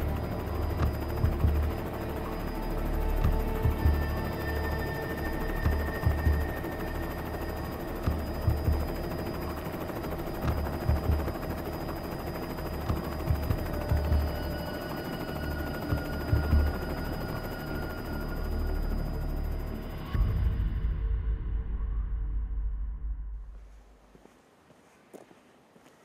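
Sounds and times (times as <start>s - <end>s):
helicopter engine and rotor din: 0.0s - 20.5s.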